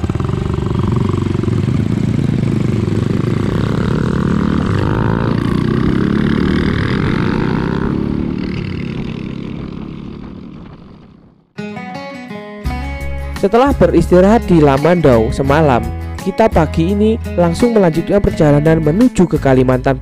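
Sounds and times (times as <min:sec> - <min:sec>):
small motorcycles accelerating: 0:00.0 - 0:11.5.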